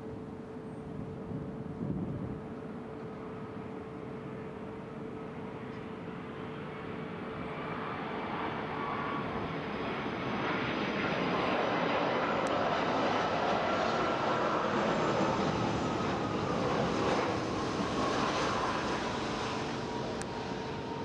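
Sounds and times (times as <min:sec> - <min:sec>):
airliner jet engines rushing: 0:05.8 - 0:21.0.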